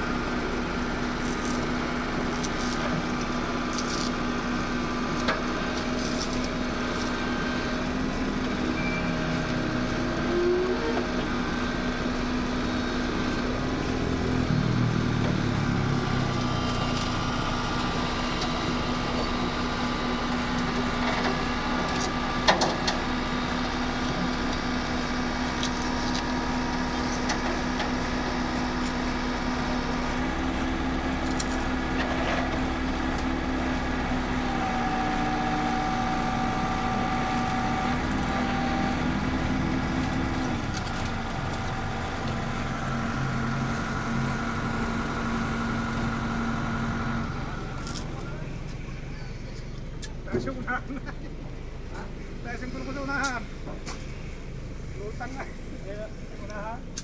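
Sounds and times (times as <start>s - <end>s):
excavator diesel engine running: 0.0s - 57.0s
hydraulics working: 0.0s - 57.0s.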